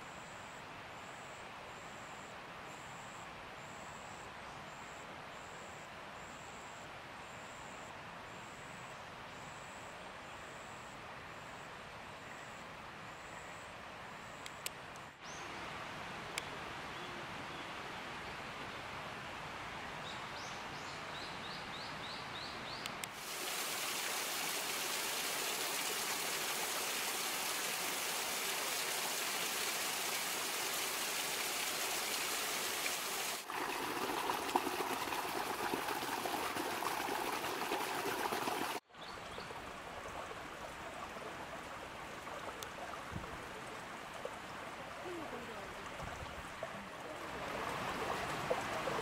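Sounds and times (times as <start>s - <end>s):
stream running over stones: 23.1s - 49.0s.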